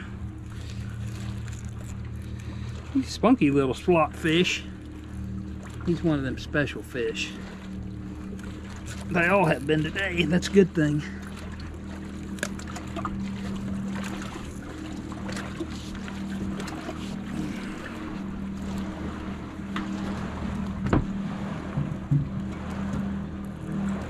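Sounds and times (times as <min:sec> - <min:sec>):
low machine hum: 0:00.0 - 0:24.0
knocks and clatters: 0:20.8 - 0:23.1.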